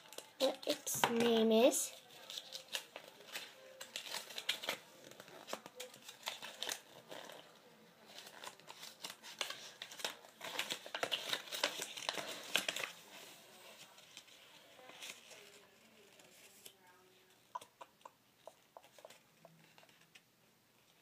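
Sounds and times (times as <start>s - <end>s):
wrapper crinkling: 1.9s - 13.0s.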